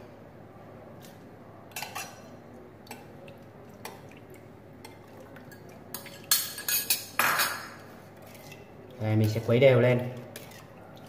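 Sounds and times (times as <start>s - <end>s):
metal spoon clinking porcelain bowl: 6.0s - 7.6s.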